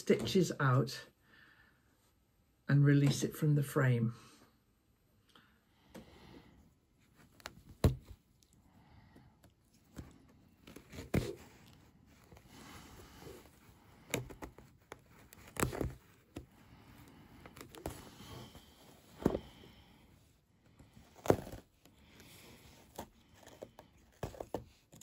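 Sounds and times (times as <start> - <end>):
cloth rustling: 9.5 - 19.9
stitches snapping: 14.0 - 16.5.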